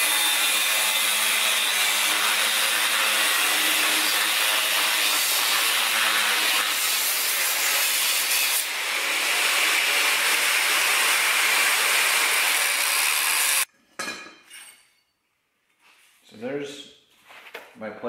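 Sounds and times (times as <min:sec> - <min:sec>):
angle grinder grinding steel: 0:00.0 - 0:13.7.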